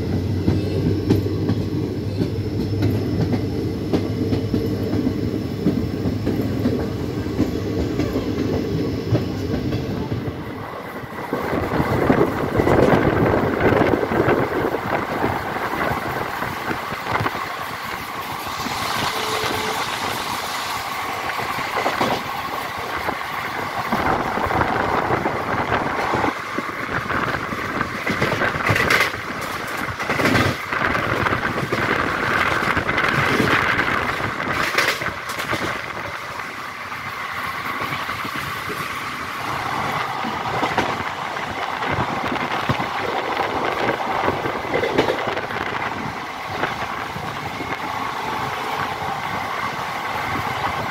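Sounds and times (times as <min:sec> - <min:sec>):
train wheel and wind noise: 0:00.0 - 0:50.9.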